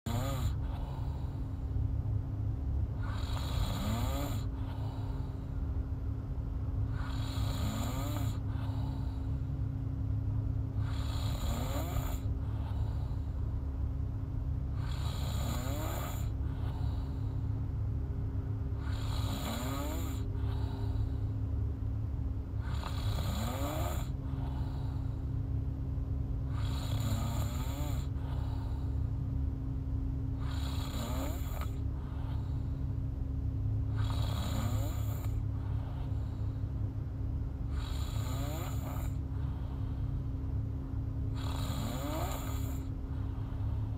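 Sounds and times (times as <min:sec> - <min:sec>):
woman snoring: 0:00.0 - 0:01.6, 0:03.0 - 0:05.5, 0:06.9 - 0:09.4, 0:10.7 - 0:13.4, 0:14.7 - 0:17.4, 0:18.8 - 0:21.4, 0:22.6 - 0:25.2, 0:26.5 - 0:29.1, 0:30.4 - 0:32.7, 0:33.9 - 0:36.5, 0:37.7 - 0:40.0, 0:41.3 - 0:43.9.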